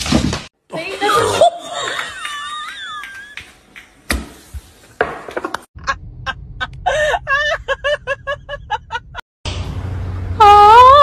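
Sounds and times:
low steady rumble: 5.8 - 10.9.

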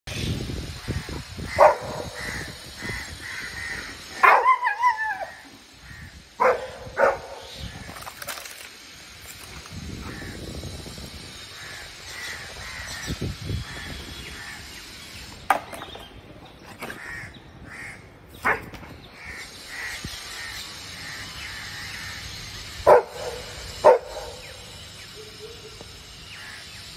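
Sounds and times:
dogs barking: 1.5 - 2.3, 4.2 - 5.4, 6.4 - 7.6, 18.4 - 18.7, 22.8 - 24.6
bird calls: 11.4 - 26.9.

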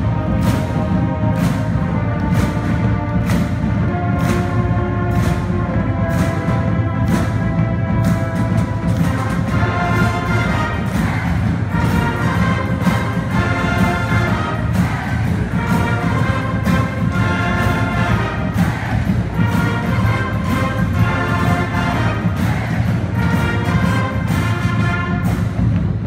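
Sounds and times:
brass section holding notes: 0.0 - 25.6
marching snare and bass drums: 0.0 - 26.0.

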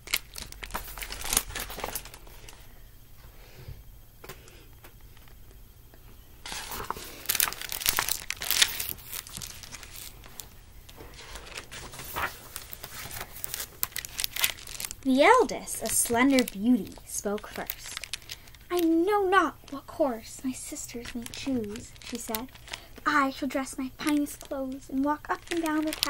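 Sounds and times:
book pages rustling: 0.1 - 2.6, 6.4 - 26.0.

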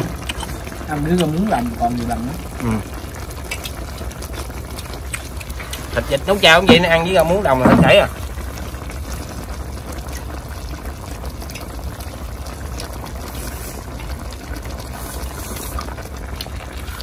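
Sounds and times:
broth bubbling at a boil: 0.0 - 17.0.

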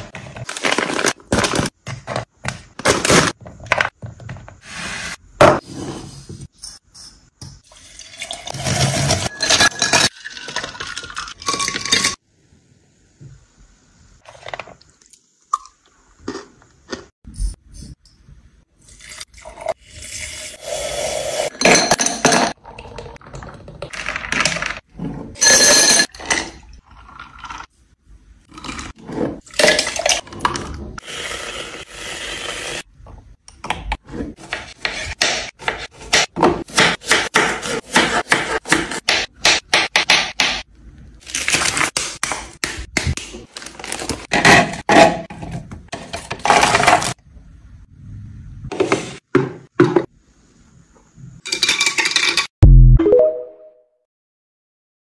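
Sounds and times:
kitchenware scraping and clinking: 7.9 - 12.2, 21.5 - 26.6, 51.4 - 52.5.

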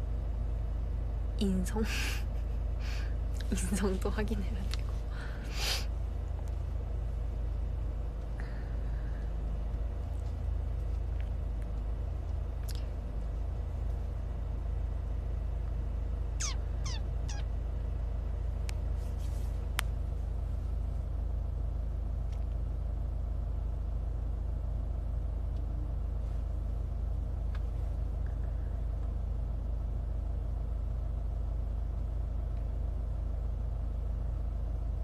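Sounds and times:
low rumble inside car: 0.0 - 35.0
short falling chirps: 16.4 - 17.5.

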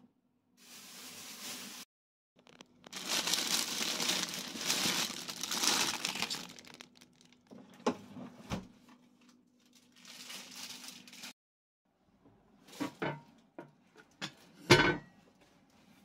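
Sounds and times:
plastic bags crinkling: 2.4 - 7.5, 9.6 - 11.4.

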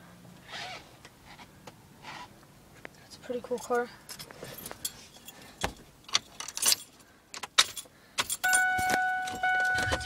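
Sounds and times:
keys jangling: 6.0 - 10.0.

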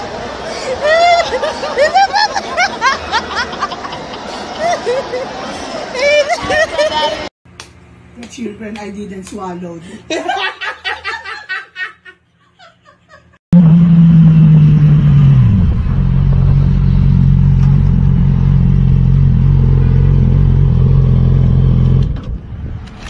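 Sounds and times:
motorcycle engine: 13.5 - 22.2.

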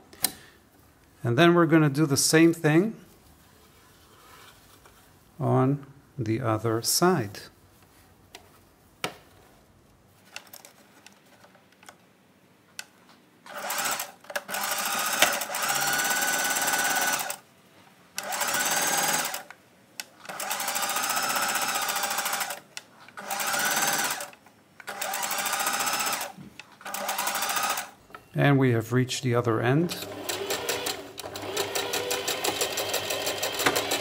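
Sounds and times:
sewing machine stitching: 13.5 - 17.4, 18.2 - 19.5, 20.2 - 22.6, 23.2 - 24.3, 24.9 - 28.0, 30.0 - 34.0.

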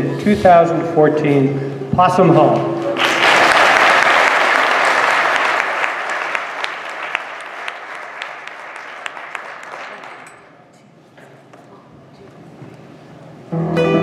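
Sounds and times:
audience applauding: 2.9 - 10.5.

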